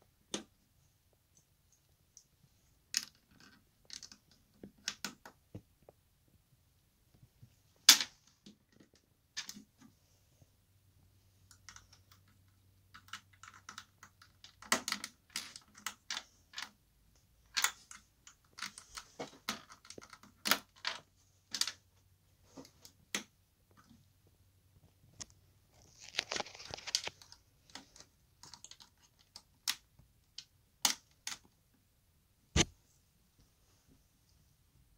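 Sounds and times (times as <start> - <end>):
plastic pieces clicking: 2.9 - 5.3, 11.5 - 16.8, 17.5 - 21.8, 25.2 - 31.5.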